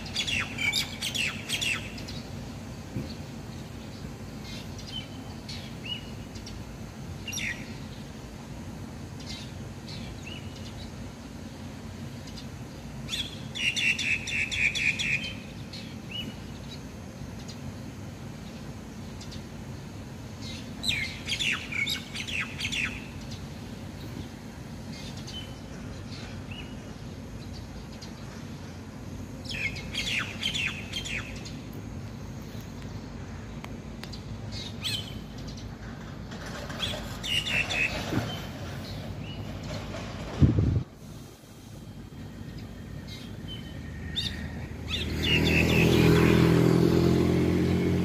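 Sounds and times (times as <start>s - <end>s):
starling singing: 0.0s - 2.2s, 20.4s - 23.4s, 29.4s - 31.6s, 36.7s - 38.4s.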